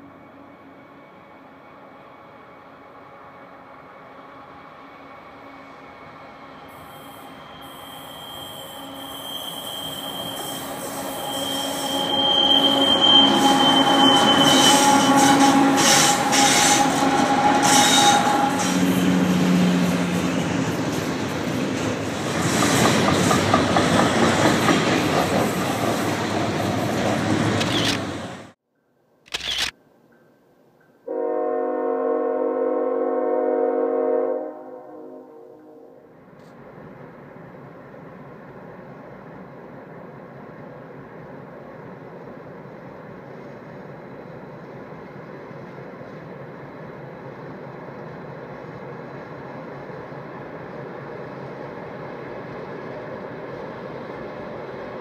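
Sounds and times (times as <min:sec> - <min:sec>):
train wheels squealing: 0:00.0 - 0:20.5
locomotive air horn: 0:08.1 - 0:19.4, 0:31.1 - 0:36.1.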